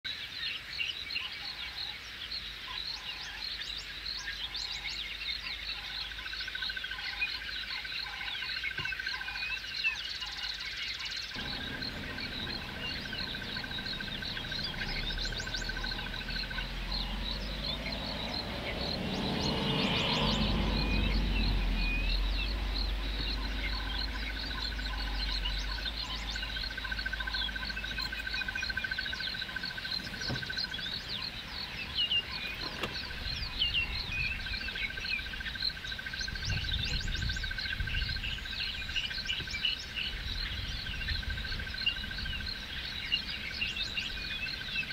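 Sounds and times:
evenly spaced frog calls: 0.1s - 44.9s
rapid high ticking: 11.4s - 18.4s
low hum: 11.4s - 35.6s.

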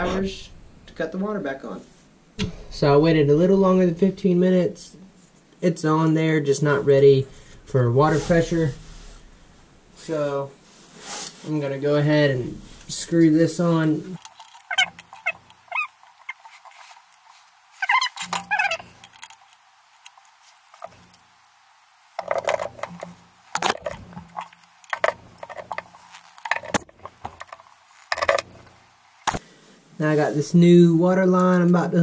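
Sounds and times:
metallic clicks and scrapes of valve: 14.1s - 21.4s, 22.2s - 29.4s.

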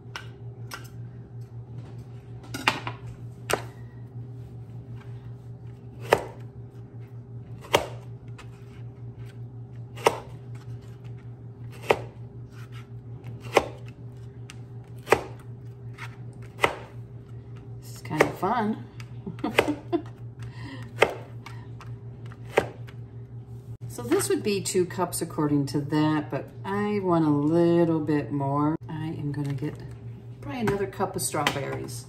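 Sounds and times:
food chopper blades knocking: 17.9s - 22.9s.

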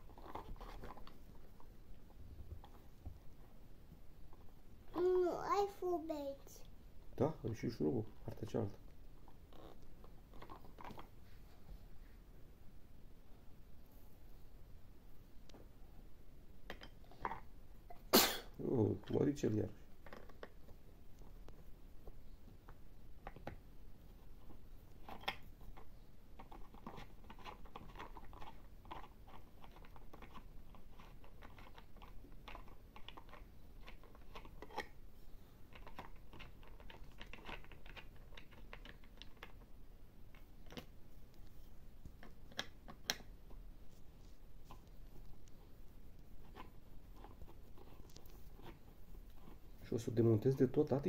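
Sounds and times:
plastic parts clicking and rattling: 25.0s - 35.0s, 35.7s - 39.7s.

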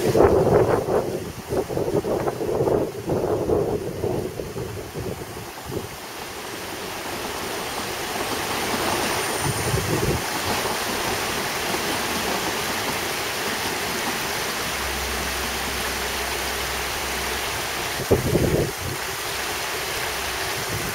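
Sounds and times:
railway coaches rolling on track: 0.0s - 20.9s
low rumble: 14.4s - 19.6s.

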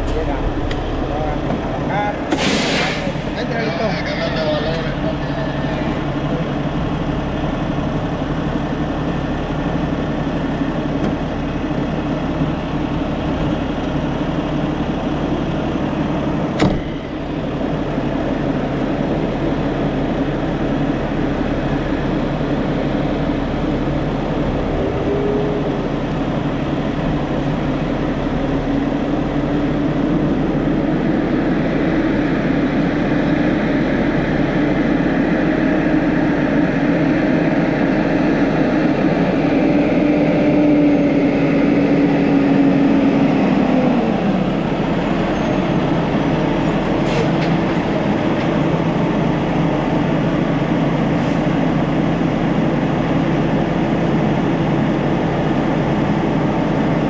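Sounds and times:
diesel truck engine running: 0.0s - 57.0s.

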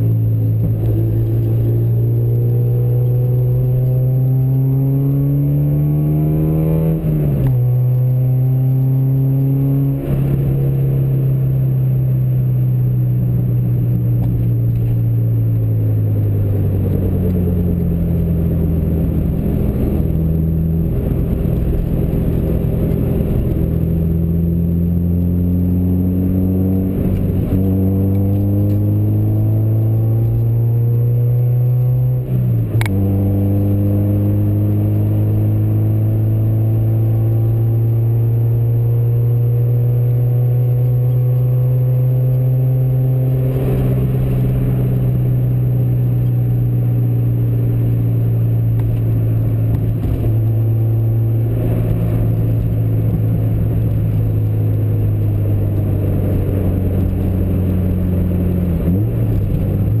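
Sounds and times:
vehicle engine running: 42.4s - 60.0s.

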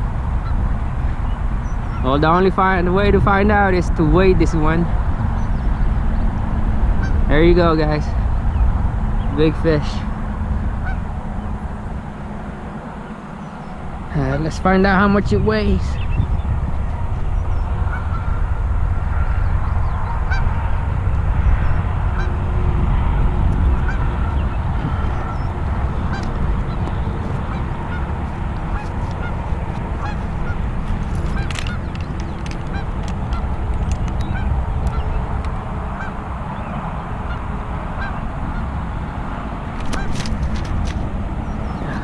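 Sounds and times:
wind rumbling on microphone: 0.0s - 42.0s
faint bird calls: 23.6s - 35.4s.

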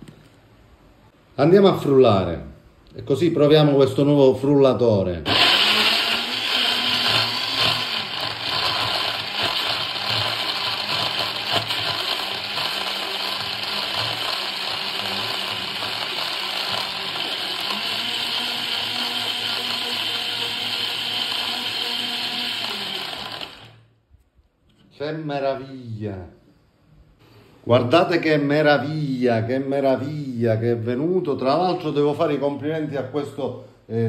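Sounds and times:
blender whirring: 5.3s - 23.9s.

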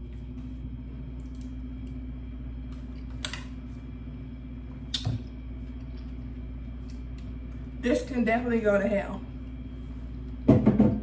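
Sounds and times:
low room hum: 0.0s - 11.0s
wine bottle knocking on table: 10.5s - 11.0s.

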